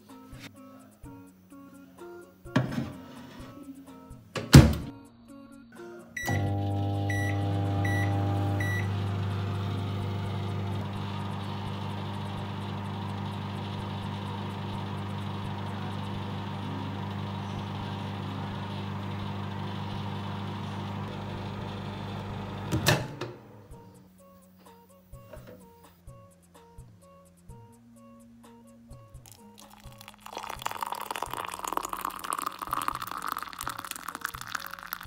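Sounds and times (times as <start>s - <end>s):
microwave oven humming: 6.2s - 23.9s.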